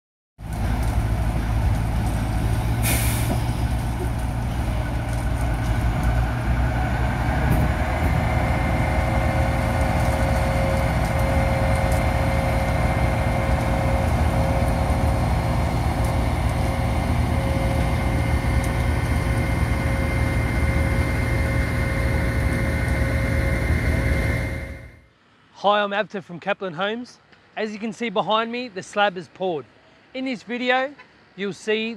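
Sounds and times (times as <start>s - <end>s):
diesel truck engines rumbling: 0.4s - 25.0s
steady whine: 0.5s - 25.2s
air brakes hissing: 2.6s - 3.8s.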